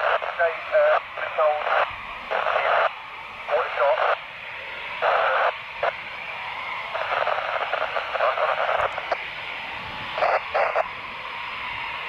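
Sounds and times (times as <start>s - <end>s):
radio voice transmissions: 0.0s - 2.9s, 3.5s - 4.2s, 5.0s - 5.9s, 7.0s - 9.1s, 10.2s - 10.8s
steady radio hiss: 0.0s - 11.8s.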